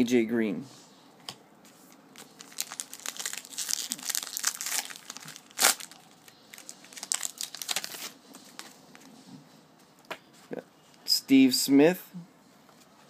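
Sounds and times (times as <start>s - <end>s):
loud wrapper snap: 2.2s - 6.0s
foil wrapper tearing and crinkling: 2.2s - 8.2s.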